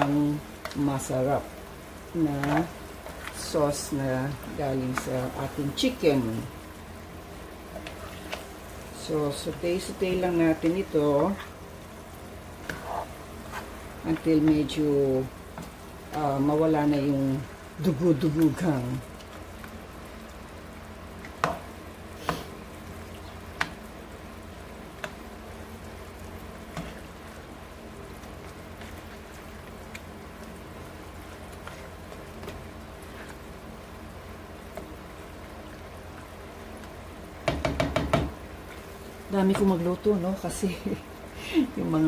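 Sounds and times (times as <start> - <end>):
chicken sizzling in a frying pan: 0.0 - 42.0
spatula knocking against pan: 37.4 - 38.4.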